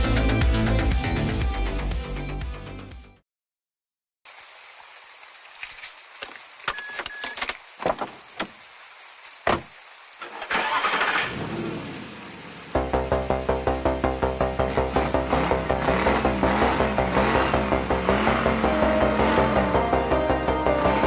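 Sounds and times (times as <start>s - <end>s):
music with steady beat: 0.0s - 3.2s, 13.1s - 21.0s.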